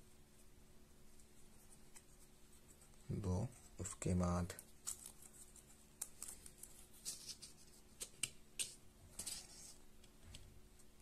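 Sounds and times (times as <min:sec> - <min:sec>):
wire scratching and ticking: 0:04.5 - 0:10.4.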